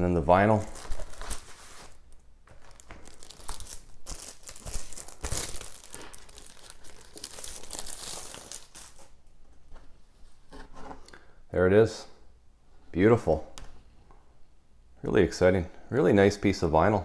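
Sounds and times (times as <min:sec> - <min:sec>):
record sleeve rustling and crinkling: 0:00.5 - 0:11.0.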